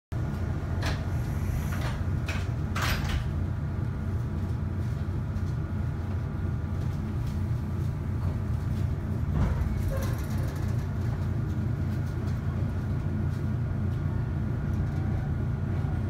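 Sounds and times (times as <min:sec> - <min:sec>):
train low hum: 0:00.1 - 0:16.0
pneumatic train doors closing: 0:00.7 - 0:03.4.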